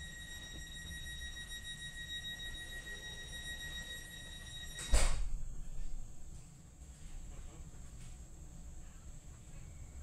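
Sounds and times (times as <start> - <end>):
high-pitched whine: 0.0 - 5.7.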